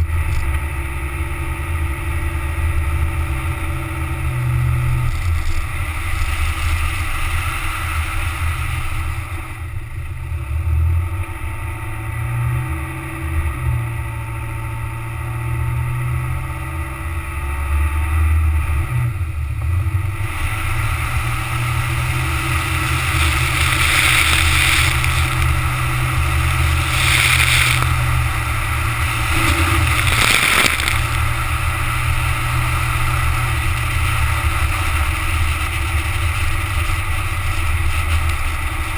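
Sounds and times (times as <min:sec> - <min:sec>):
car engine and tyres rumbling: 0:00.0 - 0:38.9
hissing rush: 0:20.3 - 0:38.3.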